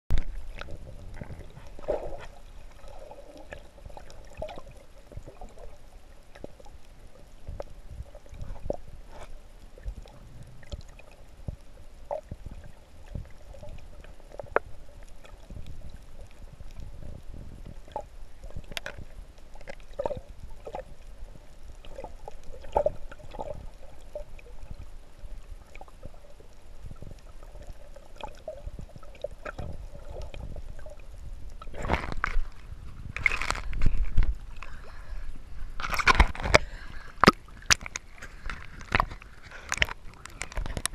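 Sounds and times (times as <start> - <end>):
muffled underwater rumble: 0.1 - 40.9.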